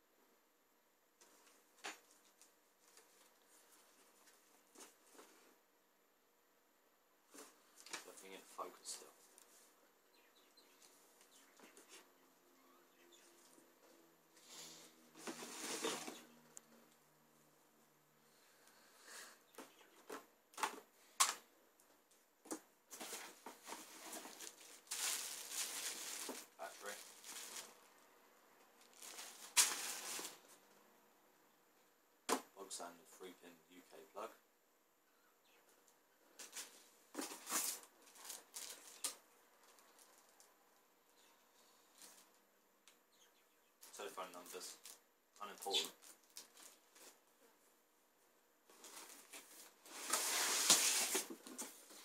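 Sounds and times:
paper and cardboard rustling: 15.2s - 16.3s, 22.9s - 27.8s, 28.9s - 30.6s, 36.4s - 39.2s, 48.7s - 52.0s
rustle: 48.7s - 52.0s.

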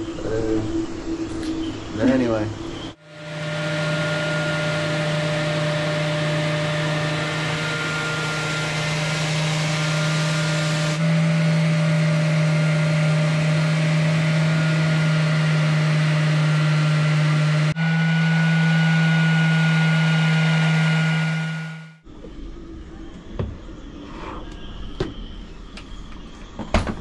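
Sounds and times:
orbital sander humming: 3.0s - 22.0s.

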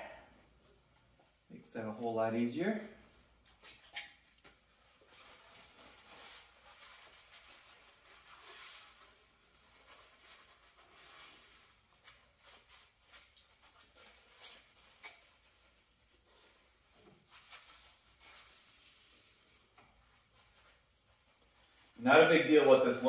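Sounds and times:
paper towel rubbing and swishing: 4.7s - 23.0s.

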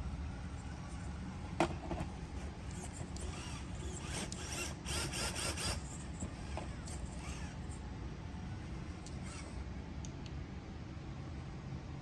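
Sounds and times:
toy car motor whirring: 0.6s - 9.6s.

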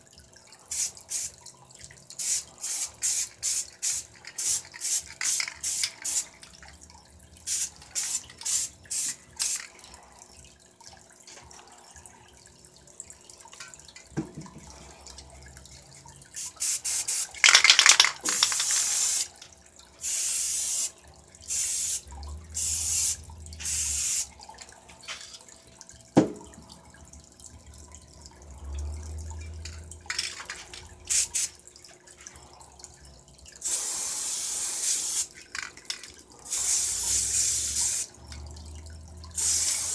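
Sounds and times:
spray paint can hissing: 0.7s - 1.3s, 2.2s - 6.4s, 7.5s - 9.7s, 16.4s - 19.4s, 20.0s - 20.9s, 21.5s - 24.3s, 29.6s - 31.6s, 33.6s - 38.1s, 39.4s - 39.9s.

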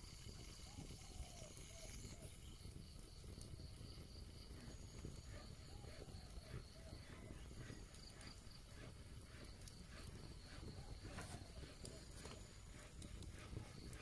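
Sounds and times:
insect trill: 0.0s - 14.0s
wood fire crackling: 0.0s - 14.0s.

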